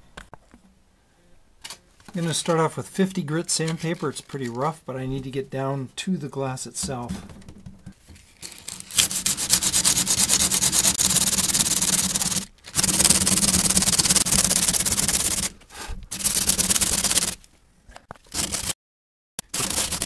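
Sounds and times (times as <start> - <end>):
sandpaper scrubbing fiberglass: 8.8 - 17.4, 18.3 - 18.7, 19.5 - 20.0.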